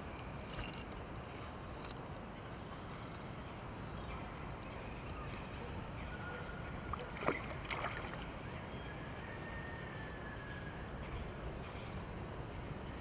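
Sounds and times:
wind: 0:00.0 - 0:13.0
river flowing: 0:06.6 - 0:08.6.

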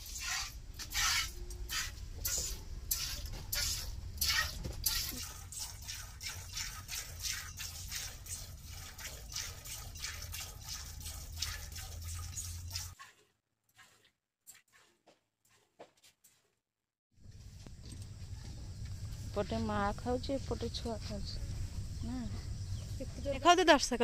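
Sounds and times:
milk squirting into metal pot: 0:00.0 - 0:13.0.

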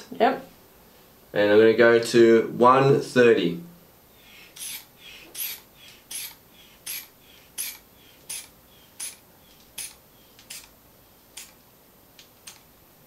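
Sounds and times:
inflation bulb squeezing hiss: 0:04.3 - 0:09.2, 0:09.8 - 0:10.7.

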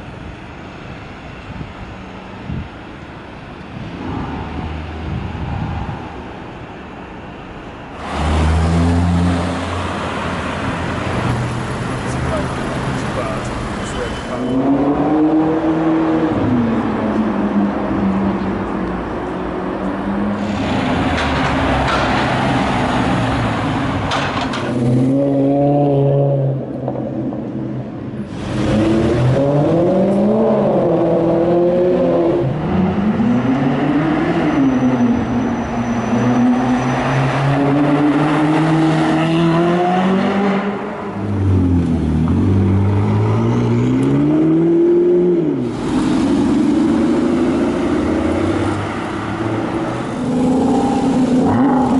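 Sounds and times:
car engines revving and accelerating: 0:07.9 - 0:51.9.

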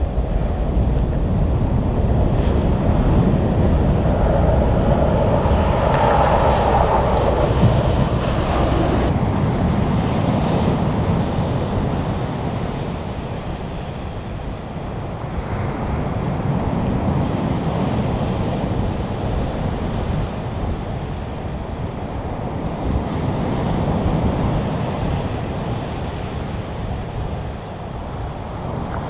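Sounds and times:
distant jet engine rumble: 0:00.0 - 0:09.9
wind buffeting microphone: 0:00.0 - 0:29.0.

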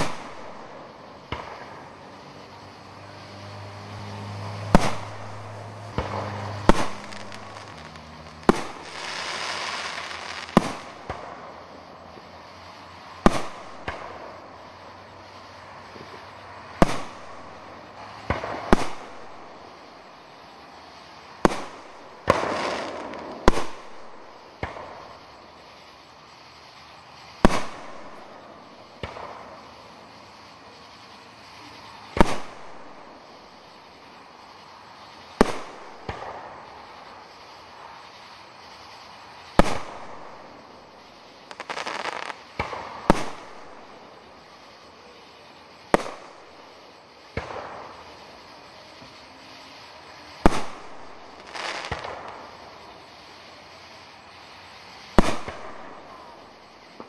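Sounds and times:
firework shells bursting: 0:00.0 - 0:12.4, 0:13.1 - 0:14.9, 0:21.3 - 0:25.4, 0:27.0 - 0:30.0, 0:34.6 - 0:44.6, 0:45.8 - 0:53.1, 0:54.9 - 0:57.0.

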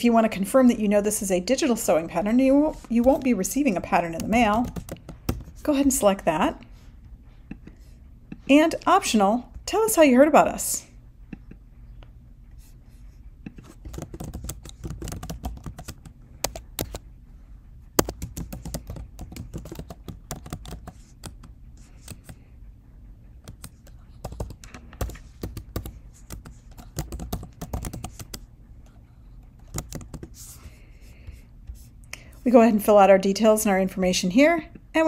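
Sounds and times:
computer keyboard typing: 0:04.0 - 0:05.7, 0:13.5 - 0:17.0, 0:18.0 - 0:22.4, 0:23.4 - 0:28.5, 0:29.6 - 0:30.6.

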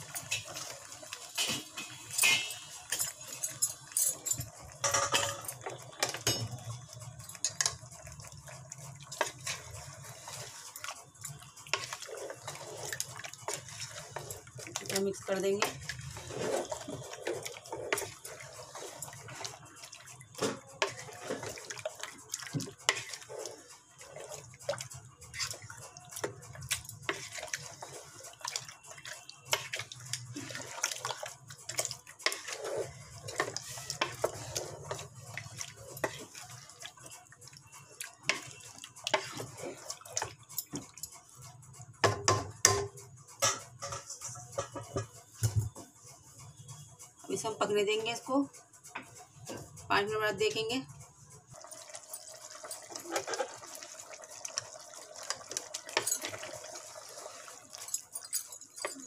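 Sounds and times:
wet stirring sounds: 0:00.0 - 0:59.0
spoon scraping metal pot: 0:01.4 - 0:04.2, 0:09.1 - 0:37.0, 0:38.1 - 0:41.1, 0:42.0 - 0:45.6, 0:51.6 - 0:59.0.

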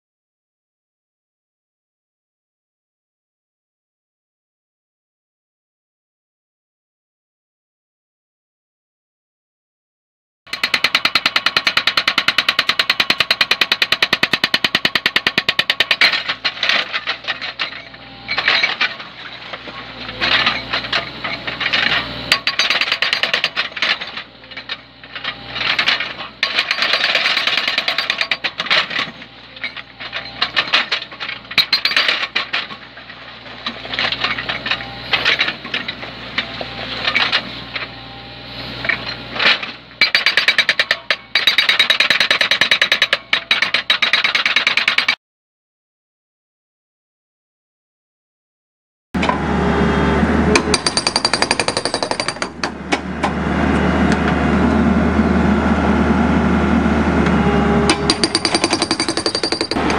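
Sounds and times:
hydraulic breaker hammering rock: 0:10.5 - 0:38.0, 0:38.9 - 0:45.2, 0:50.4 - 0:54.5, 0:57.2 - 0:59.9
excavator engine humming: 0:16.2 - 0:27.8, 0:28.5 - 0:40.0, 0:49.2 - 0:59.9.

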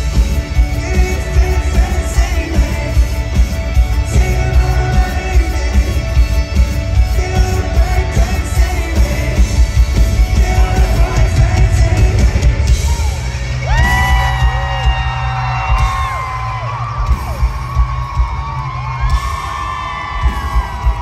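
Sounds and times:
live rock band playing: 0:00.0 - 0:21.0
people yelling and whooping: 0:10.4 - 0:21.0.

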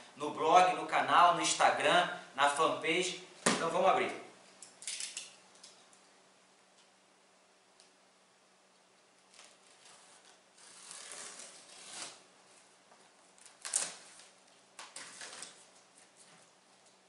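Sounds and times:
knife slicing packing tape: 0:09.3 - 0:12.2, 0:13.4 - 0:14.2.

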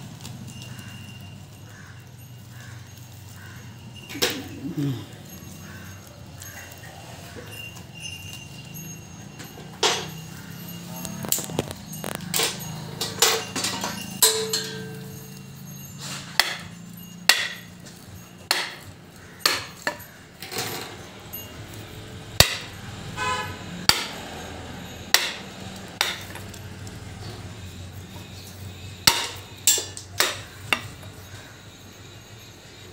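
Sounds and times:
hammer striking wooden drift: 0:17.3 - 0:17.7, 0:22.4 - 0:22.7, 0:23.9 - 0:24.2.

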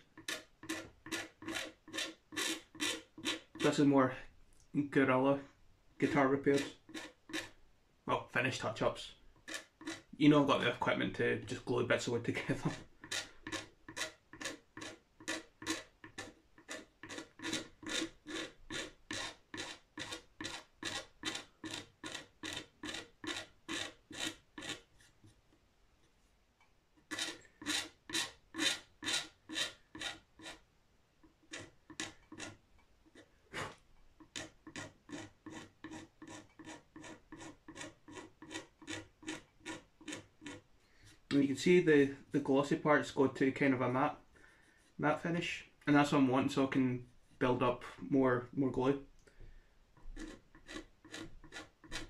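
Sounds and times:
razor blade scraping finish: 0:00.2 - 0:03.8, 0:06.1 - 0:07.6, 0:09.4 - 0:10.1, 0:13.0 - 0:24.9, 0:27.1 - 0:30.6, 0:50.2 - 0:52.0.

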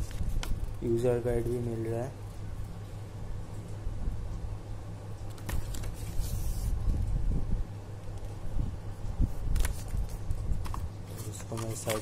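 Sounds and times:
low background hum: 0:00.0 - 0:12.0
paper rustling: 0:05.3 - 0:06.8, 0:09.4 - 0:12.0.

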